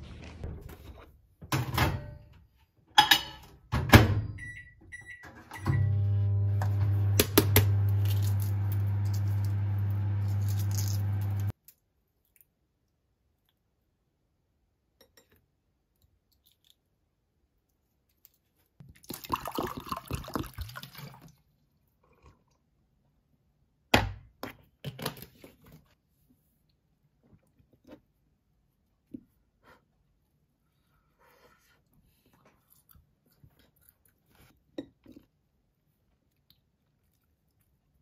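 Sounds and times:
water pouring: 18.8s - 21.5s.

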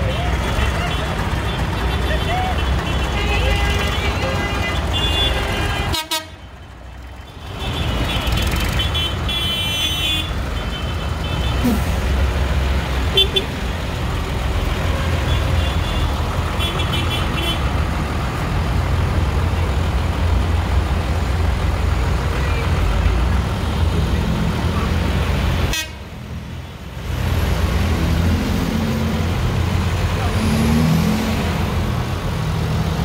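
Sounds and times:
horns tooting: 0.0s - 12.1s, 13.0s - 13.7s, 14.6s - 17.8s, 25.6s - 26.2s
tractor engines rumbling: 0.0s - 33.0s.

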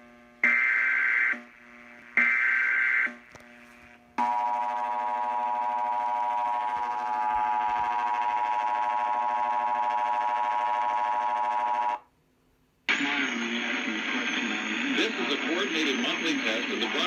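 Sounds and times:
two-tone alarm signal: 0.4s - 1.5s, 2.2s - 3.2s, 4.2s - 12.0s.

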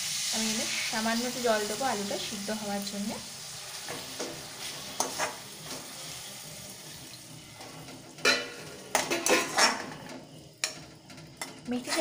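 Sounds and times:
pan sizzling: 0.0s - 12.0s
spatula scraping metal pan: 3.8s - 12.0s.

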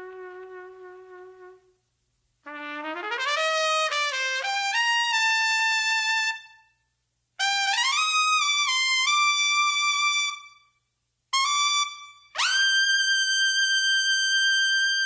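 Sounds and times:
solo trumpet playing slow phrases: 0.0s - 1.8s, 2.4s - 6.6s, 11.3s - 15.0s.

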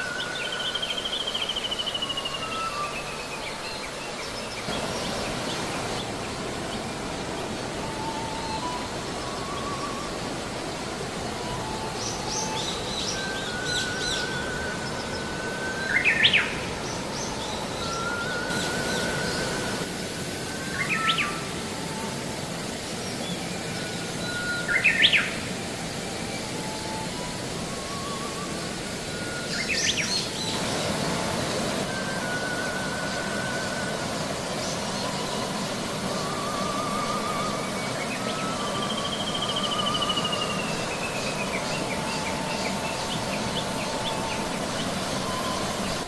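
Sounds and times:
songbird trilling: 11.4s - 19.8s, 34.2s - 46.0s.

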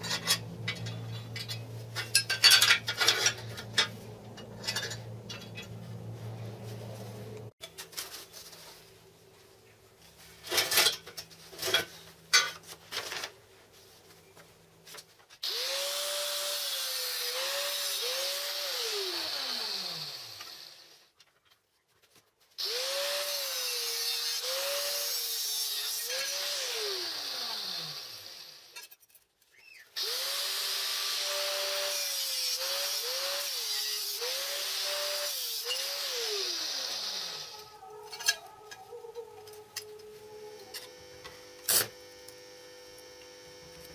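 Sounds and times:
electric angle grinder whining: 15.4s - 21.0s, 22.6s - 28.8s, 30.0s - 38.8s, 39.4s - 43.9s.

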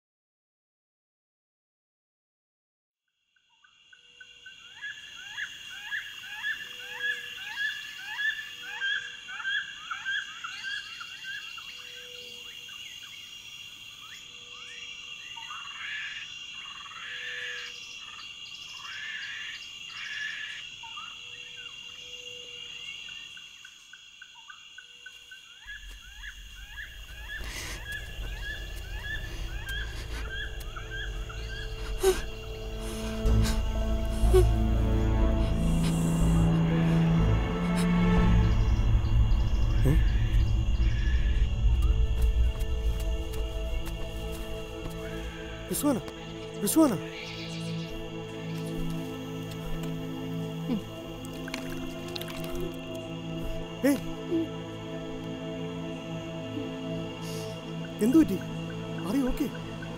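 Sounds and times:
high insect drone: 3.2s - 59.9s
low rumble: 38.2s - 44.8s.

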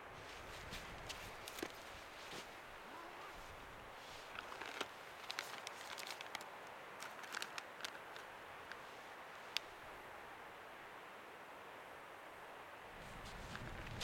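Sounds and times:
faint outdoor hiss: 0.0s - 14.0s
hands handling a camera: 1.1s - 2.4s.

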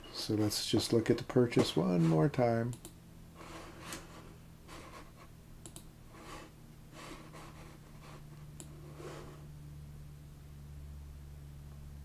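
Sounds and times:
low hum: 0.0s - 12.0s
computer mouse clicks: 5.6s - 5.9s, 8.5s - 8.8s.

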